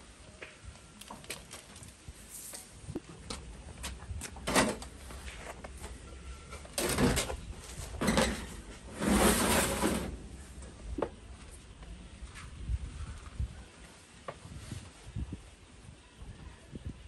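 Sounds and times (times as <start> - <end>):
rough scraping noise: 6.8 - 10.5.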